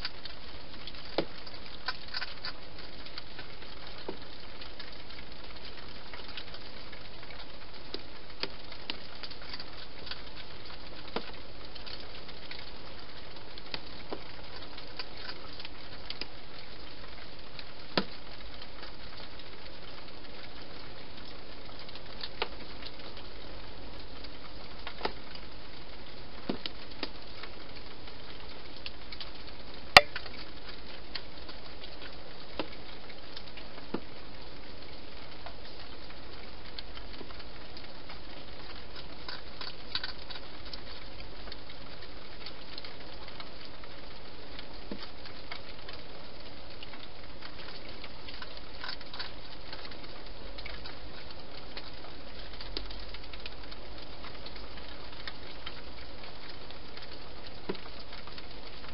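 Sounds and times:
hedgehog crunching food: 0:00.0 - 0:07.6, 0:08.3 - 0:16.4, 0:36.7 - 0:43.6, 0:46.8 - 0:58.8.

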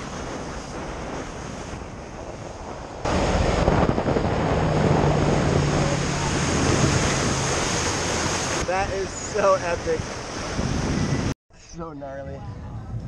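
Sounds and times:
water noise: 0:00.0 - 0:11.8
wind buffeting microphone: 0:00.0 - 0:13.0
motorboat engine running: 0:03.1 - 0:08.7.

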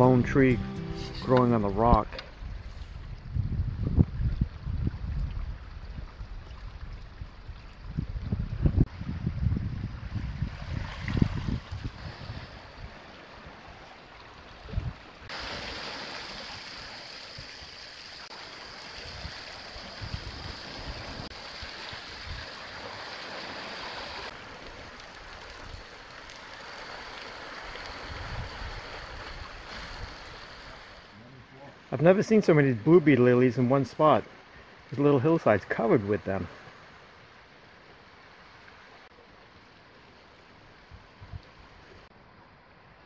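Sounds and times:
wind buffeting microphone: 0:01.8 - 0:13.0, 0:14.6 - 0:15.3, 0:28.0 - 0:30.2
surf washing on rocky shore: 0:14.8 - 0:31.2.

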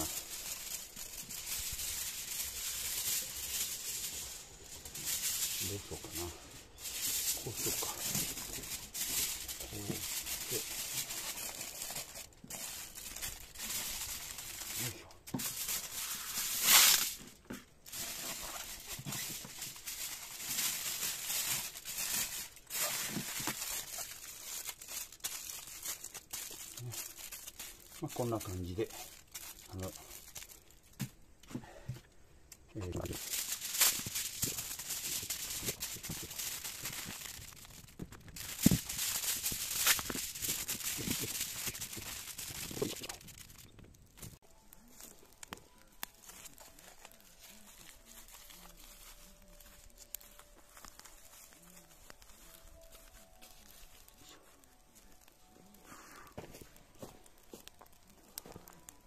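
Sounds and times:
aluminium foil crinkling: 0:00.0 - 0:59.0.

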